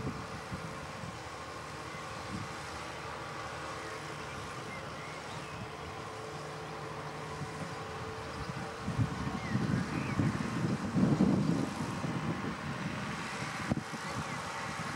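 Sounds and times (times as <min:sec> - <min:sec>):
wind buffeting microphone: 0:00.0 - 0:03.2, 0:07.0 - 0:14.9
baler machinery whine: 0:00.0 - 0:14.9.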